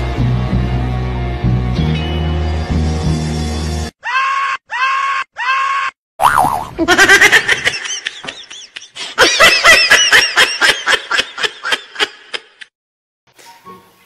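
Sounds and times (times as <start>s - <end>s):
high-pitched laughter: 4.1s - 12.7s.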